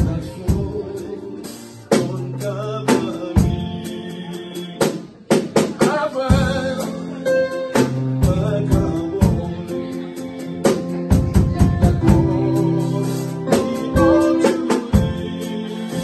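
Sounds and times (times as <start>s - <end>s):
man singing into a microphone: 0.0s - 10.3s, 11.7s - 16.0s
drum kit hits and fills: 0.0s - 16.0s
electronic keyboard chords: 6.2s - 16.0s.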